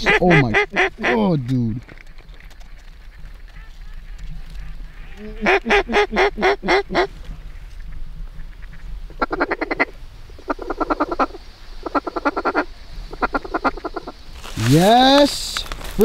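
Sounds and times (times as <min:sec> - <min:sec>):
duck quacking: 0:00.0 - 0:01.2, 0:03.6 - 0:07.1
duck rapid chatter: 0:00.0 - 0:01.2.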